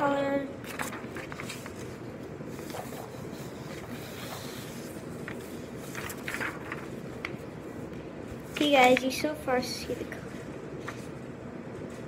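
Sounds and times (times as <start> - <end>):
paper rustling on table: 0.6 - 9.3, 10.1 - 11.2.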